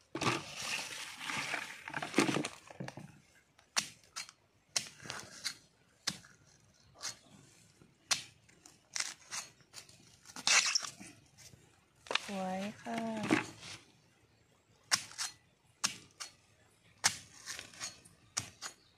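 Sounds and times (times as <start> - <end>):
rustling in dry leaf litter: 0.4 - 1.9
digging tool chopping into soil: 17.0 - 18.8.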